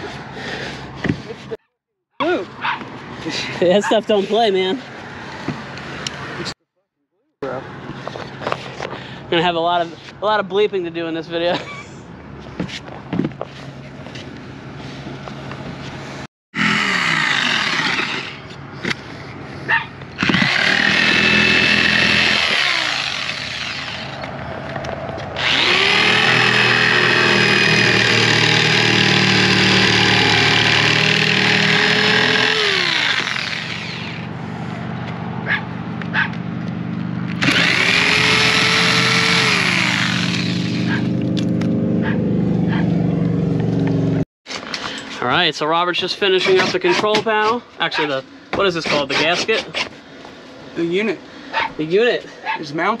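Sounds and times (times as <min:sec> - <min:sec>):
jigsaw cutting fiberglass: 0:16.6 - 0:18.5, 0:20.2 - 0:24.2, 0:25.4 - 0:34.3, 0:37.4 - 0:41.0.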